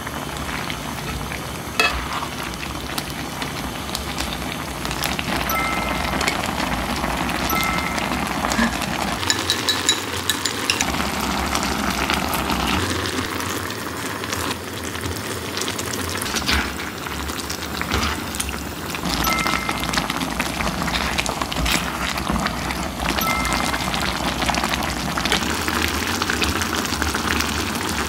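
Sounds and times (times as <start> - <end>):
stew bubbling and sizzling in skillet: 0.0 - 28.0
utensils clicking against pan: 7.5 - 11.0.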